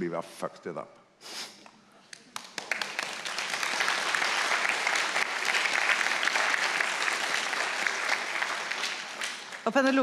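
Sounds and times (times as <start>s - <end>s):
audience applauding: 2.2s - 10.0s.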